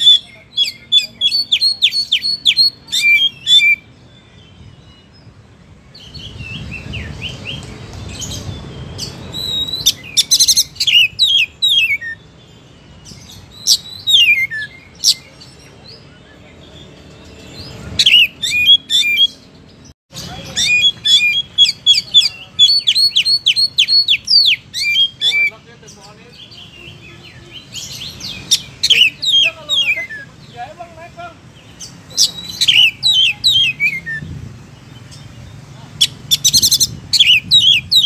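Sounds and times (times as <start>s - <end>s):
bird singing whistles: 0.0s - 5.2s, 5.9s - 12.3s, 13.0s - 15.3s, 20.5s - 25.6s, 32.1s - 34.4s, 36.0s - 38.0s.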